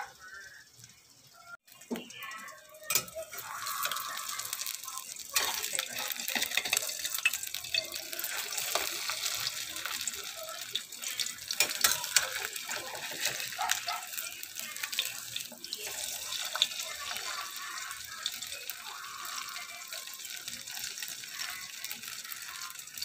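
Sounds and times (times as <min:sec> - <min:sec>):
egg sizzling in hot oil: 0:00.0 - 0:23.0.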